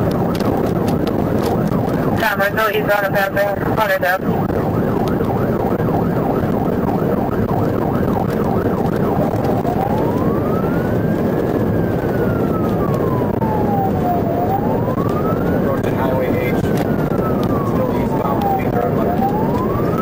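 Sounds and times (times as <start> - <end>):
engine and road noise: 0.0 - 20.0
police siren: 0.0 - 20.0.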